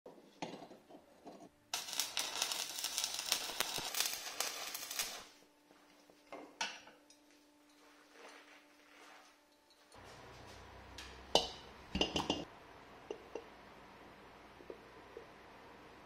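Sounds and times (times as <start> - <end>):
faint steady hum: 1.4 - 16.0
welding electrode scratching: 1.7 - 5.4
welding arc crackling and hissing: 1.7 - 5.5.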